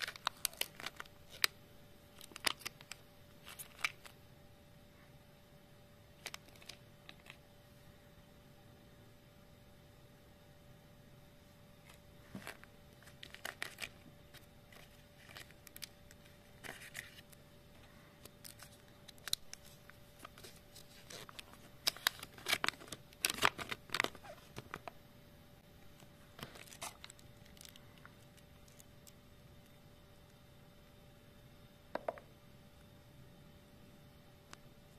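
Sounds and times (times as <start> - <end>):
wrapper crinkling and tearing: 0.0 - 4.1, 6.2 - 7.4, 11.9 - 17.4, 18.2 - 24.9, 26.3 - 28.9.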